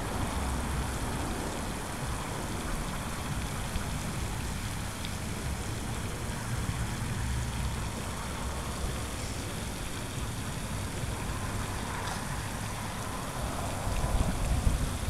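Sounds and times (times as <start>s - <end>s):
wind on microphone: 8.1s - 15.0s.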